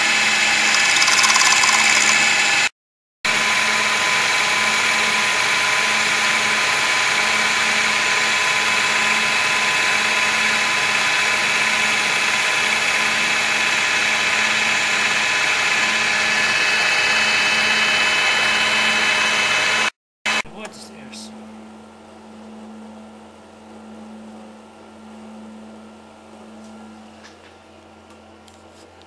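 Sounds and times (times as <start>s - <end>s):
milling machine whine: 0.0s - 2.7s, 3.3s - 20.7s.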